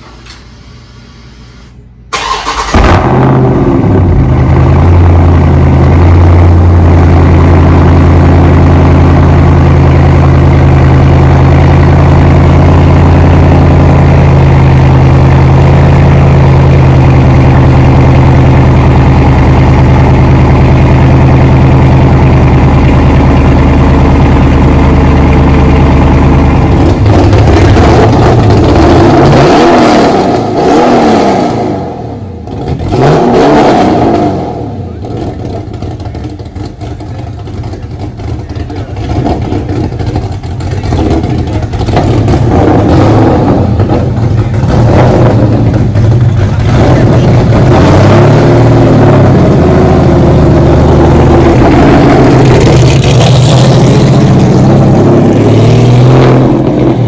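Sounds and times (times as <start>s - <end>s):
car engine starting and idling: 2.0s - 57.0s
car engine revving: 2.2s - 57.0s.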